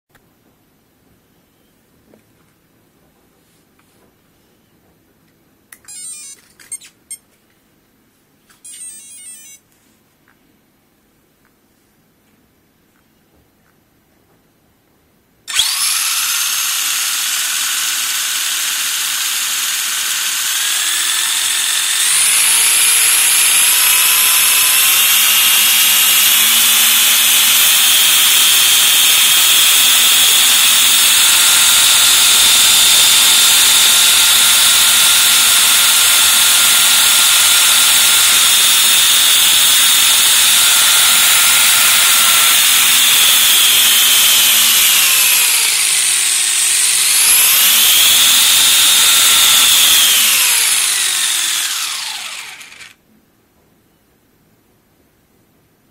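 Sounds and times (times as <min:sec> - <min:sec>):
high electric motor whine: 0:15.5 - 0:53.0.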